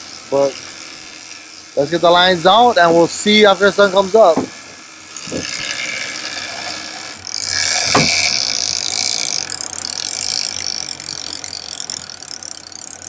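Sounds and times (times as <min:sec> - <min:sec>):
outboard motors running: 0:00.0 - 0:13.0
fishing reel clicker buzzing: 0:05.1 - 0:13.0.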